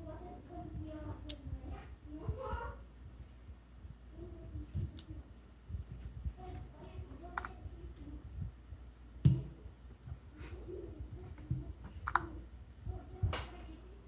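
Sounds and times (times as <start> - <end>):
fingers tapping smartphone: 11.4 - 12.4.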